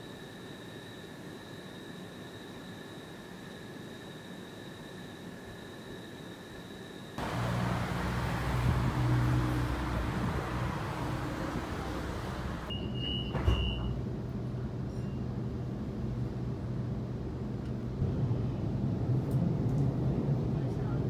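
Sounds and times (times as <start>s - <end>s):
thin steady whine: 0.0s - 12.7s
car passing: 7.2s - 12.7s
road traffic hum: 7.2s - 12.7s
tram running noise: 7.2s - 12.8s, 13.4s - 21.0s.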